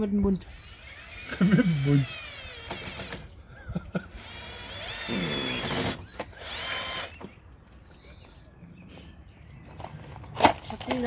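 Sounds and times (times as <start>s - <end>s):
cordless drill whining: 0.5s - 3.4s, 4.2s - 7.4s.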